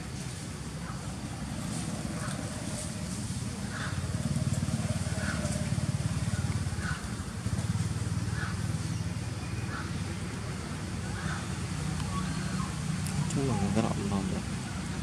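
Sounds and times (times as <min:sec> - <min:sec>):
low engine-like rumble: 0:00.0 - 0:15.0.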